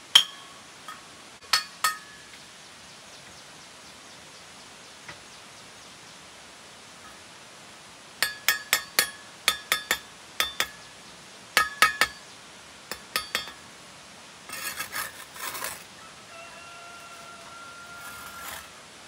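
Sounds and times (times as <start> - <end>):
scraping rustle: 14.5 - 15.9, 17.0 - 18.8.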